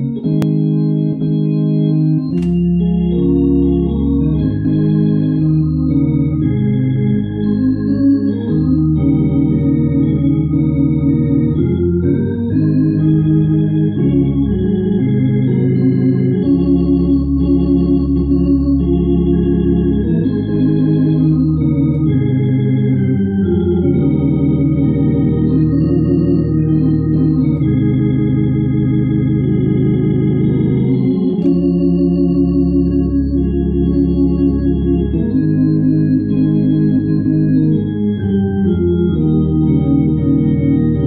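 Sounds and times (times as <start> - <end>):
organ playing a hymn: 0.0 - 41.0.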